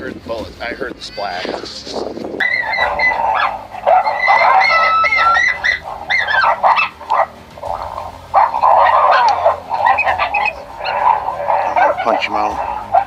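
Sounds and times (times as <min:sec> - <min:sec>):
coyotes howling: 0:02.4 - 0:13.0.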